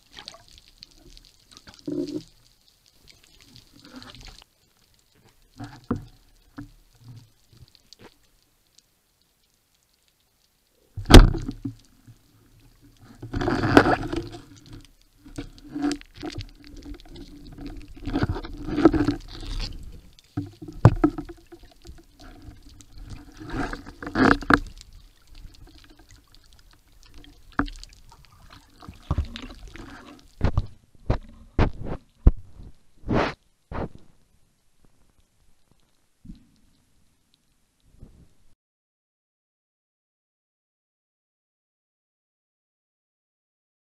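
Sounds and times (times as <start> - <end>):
underwater rushing and bubbling water: 0.0 - 38.2
underwater knocks and clicks: 0.1 - 2.5, 5.2 - 8.2, 11.0 - 32.8.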